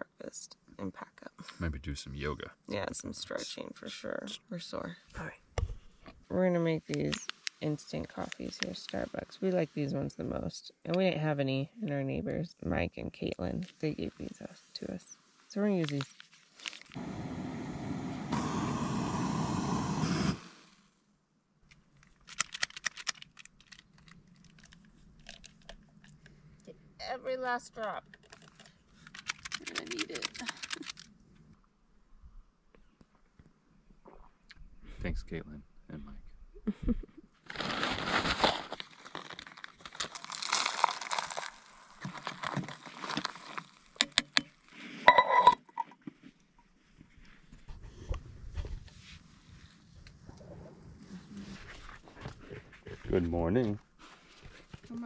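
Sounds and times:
light clicks and crinkles: 6.8 - 9.5, 13.2 - 17.0, 21.6 - 26.7, 28.0 - 31.7, 38.3 - 45.0, 51.0 - 55.0
camping stove roaring: 17.0 - 20.7.

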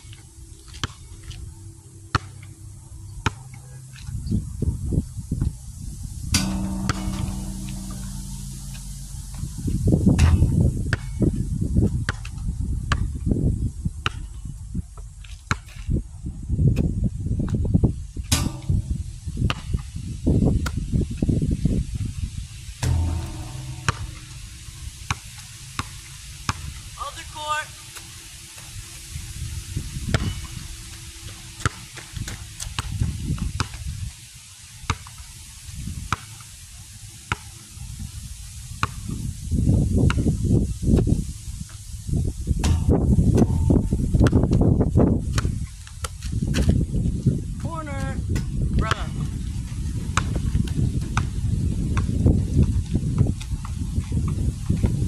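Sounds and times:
wind buffeting microphone: 4.1 - 15.2, 15.8 - 27.0, 37.9 - 55.0
low rumble: 6.4 - 11.9, 18.3 - 19.8, 22.8 - 25.8, 42.7 - 45.3.

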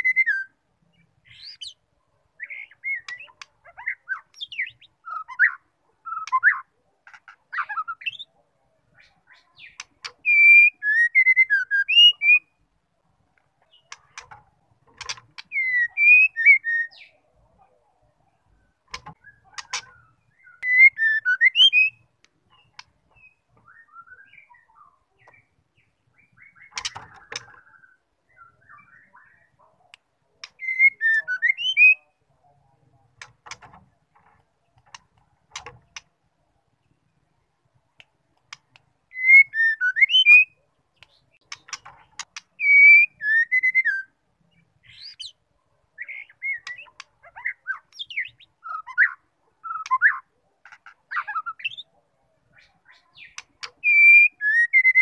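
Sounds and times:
faint bird twitters: 13.6 - 36.1
bird whistling phrases: 15.5 - 17.1, 30.6 - 32.1, 39.1 - 40.6, 42.6 - 44.2, 46.0 - 50.2
sharp clicks: 33.2 - 36.1, 38.0 - 38.9.

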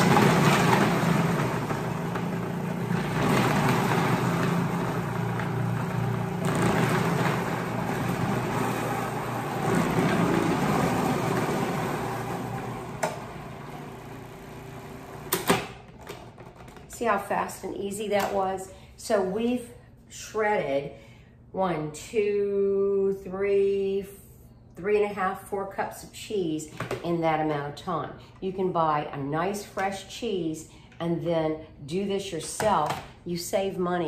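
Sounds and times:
cheese grinding in processor: 0.0 - 15.5
food processor motor hum: 0.0 - 15.7.

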